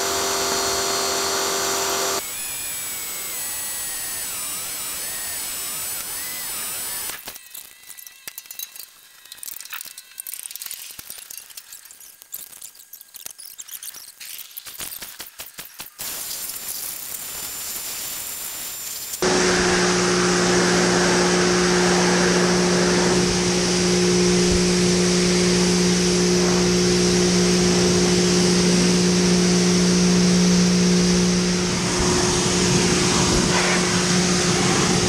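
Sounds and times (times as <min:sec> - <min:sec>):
pressure washer motor humming: 0:00.0 - 0:07.2, 0:17.6 - 0:35.0.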